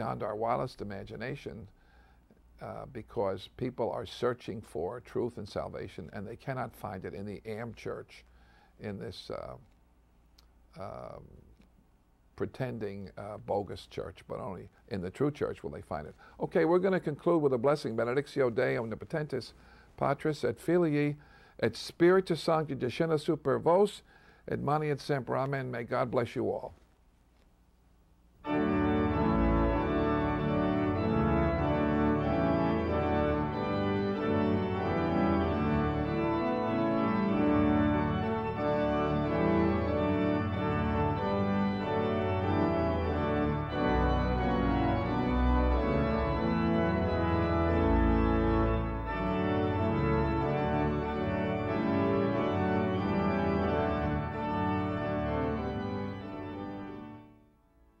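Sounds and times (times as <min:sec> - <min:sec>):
organ music: 0:00.0 - 0:01.7, 0:10.8 - 0:11.2, 0:28.4 - 0:58.0.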